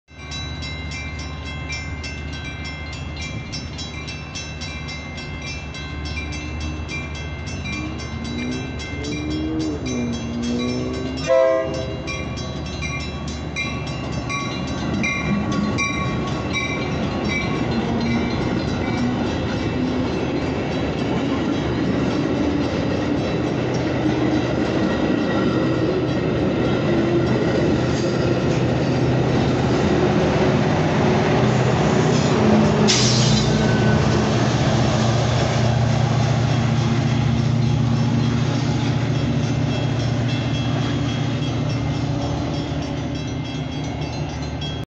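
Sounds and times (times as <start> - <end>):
bell dinging: 0.1 - 25.2
diesel locomotive engine drone: 0.1 - 44.8
train wheels clacking on rails: 0.2 - 44.8
train horn blast: 7.8 - 12.3
loud hiss: 32.1 - 33.6.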